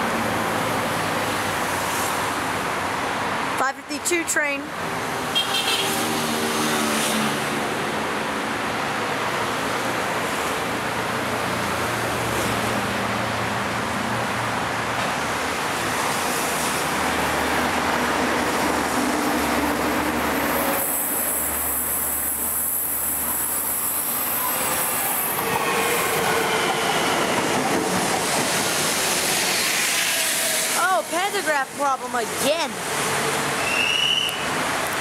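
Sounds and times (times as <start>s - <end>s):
train wheels rumbling on rail: 4.8s - 35.0s
high-pitched wheel squeal: 33.6s - 34.5s.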